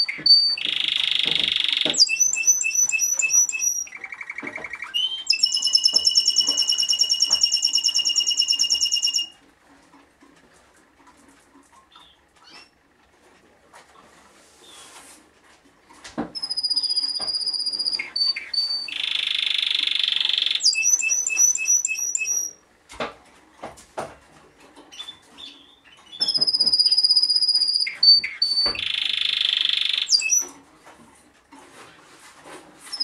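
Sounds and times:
canary singing: 0.0 - 9.4, 11.9 - 12.8, 16.4 - 22.6, 24.9 - 30.6.

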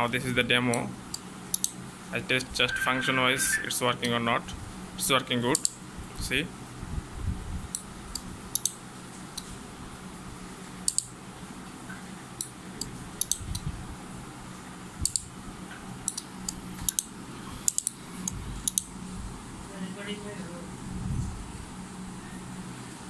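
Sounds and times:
low steady hum: 0.0 - 8.4.

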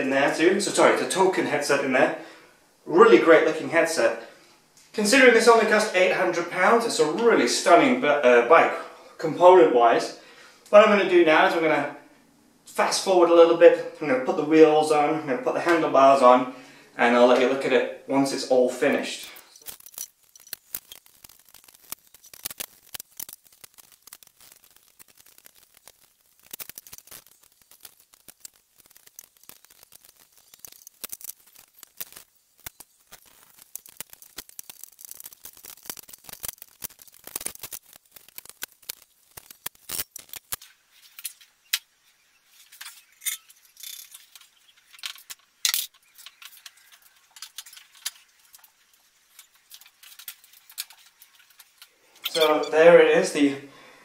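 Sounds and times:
metal parts and tools clinking: 19.3 - 23.4, 42.6 - 52.8.

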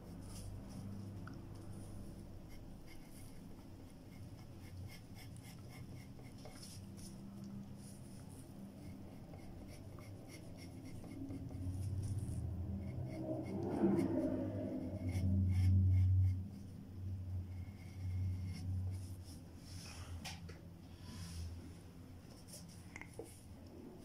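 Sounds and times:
pencil scratching on paper: 0.0 - 7.2, 7.8 - 19.4
low hum: 0.0 - 24.0.

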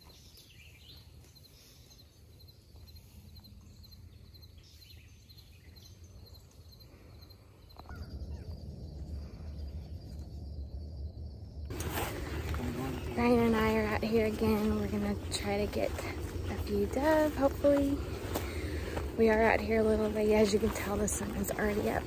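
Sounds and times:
low rumble: 7.8 - 22.0
birds calling: 11.7 - 22.0.

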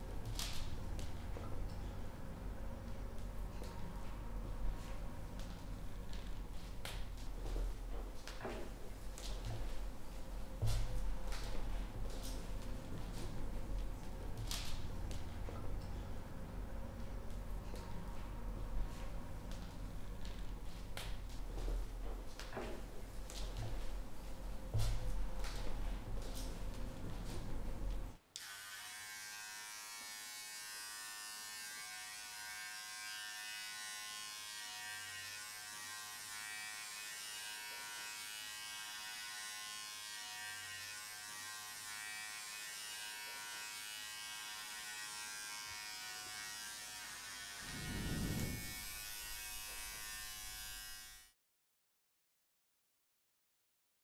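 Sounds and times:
hair clipper buzzing: 28.4 - 51.3
brief low rumble: 47.7 - 48.9.

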